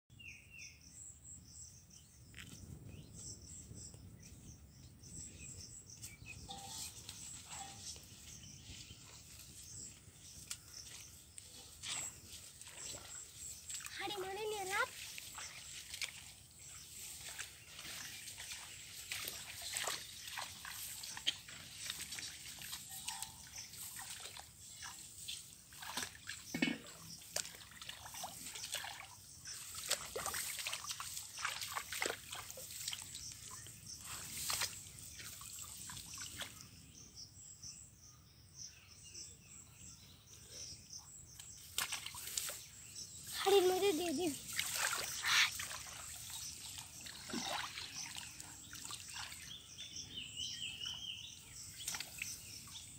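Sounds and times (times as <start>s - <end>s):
muddy water splashing: 6.5s - 36.6s, 41.4s - 52.9s.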